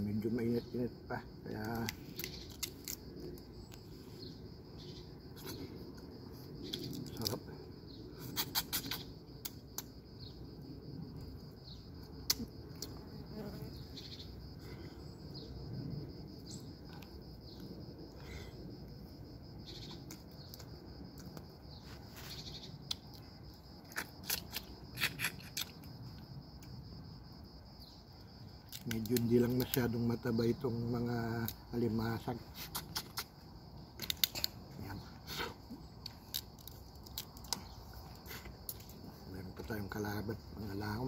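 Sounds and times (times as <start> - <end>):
insects droning: 0.0 - 41.0
crab shell cracking by hand: 1.7 - 3.0, 28.7 - 29.7, 34.0 - 34.6, 36.0 - 37.8.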